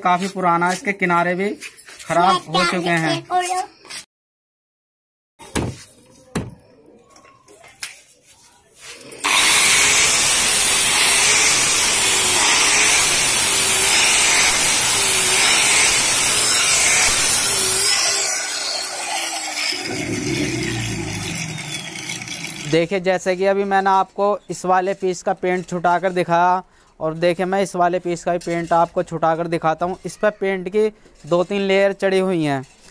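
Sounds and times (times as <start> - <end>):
angle grinder sanding: 8.8 - 22.8.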